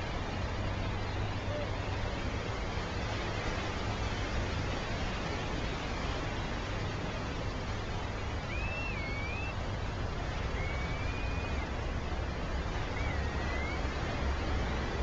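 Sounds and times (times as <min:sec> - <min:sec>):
surf rushing: 0:00.0 - 0:15.0
wind rumble on microphone: 0:00.0 - 0:15.0
wavering whistles: 0:08.4 - 0:09.6, 0:10.5 - 0:11.7, 0:12.9 - 0:13.9.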